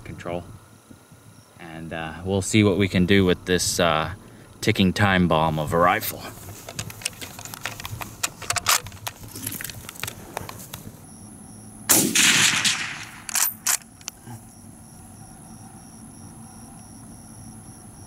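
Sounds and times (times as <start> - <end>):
rifle handling clicks: 6.6 - 10.8, 12.1 - 14.2
rifle shot: 11.9 - 13.8.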